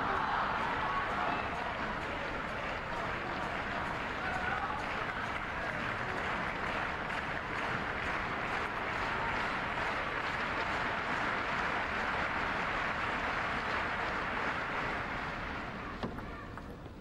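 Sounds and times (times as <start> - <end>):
crowd cheering and clapping: 0.0 - 16.9.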